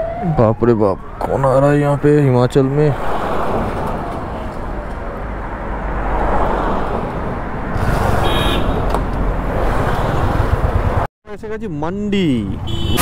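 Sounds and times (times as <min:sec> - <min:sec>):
road and traffic noise: 0:00.0 - 0:13.0
car passing close: 0:01.4 - 0:11.1.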